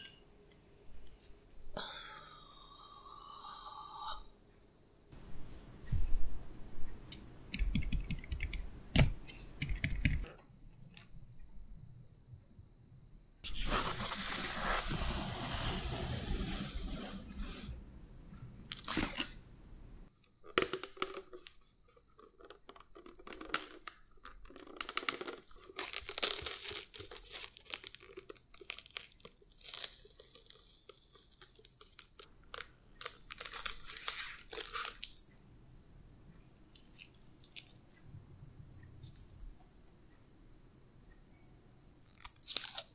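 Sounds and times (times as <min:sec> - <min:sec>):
plastic cups clicking and crinkling: 0:20.2 - 0:35.3.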